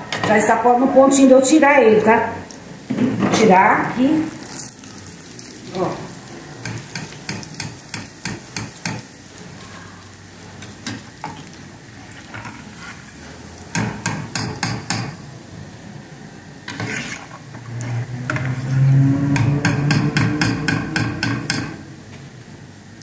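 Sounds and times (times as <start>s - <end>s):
oil sizzling: 2.4s - 19.0s.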